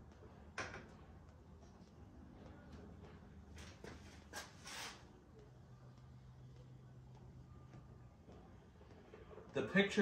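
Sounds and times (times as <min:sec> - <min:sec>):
short rustling scrape: 0:04.4 - 0:05.0.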